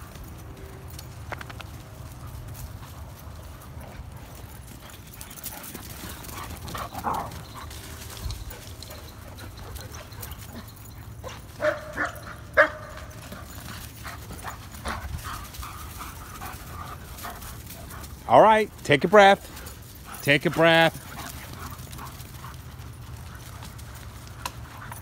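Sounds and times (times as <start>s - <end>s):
dog barking: 11.6s - 13.0s.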